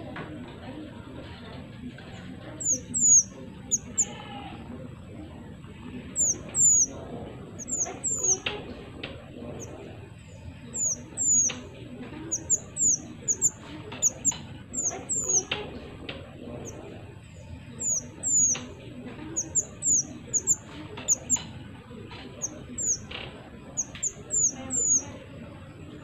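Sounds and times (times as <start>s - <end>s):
songbird high thin calls: 2.6s - 4.2s, 6.2s - 7.0s, 7.6s - 8.4s, 10.8s - 11.6s, 12.3s - 15.5s, 17.8s - 18.7s, 19.4s - 21.4s, 22.4s - 23.0s, 23.8s - 25.1s.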